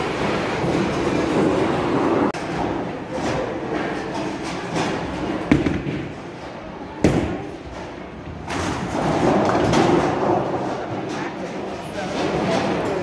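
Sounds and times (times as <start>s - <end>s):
bowling balls thudding on lanes: 0.1s - 11.2s
bowling ball rolling rumble: 7.0s - 11.2s
bowling pins clattering: 7.1s - 13.0s.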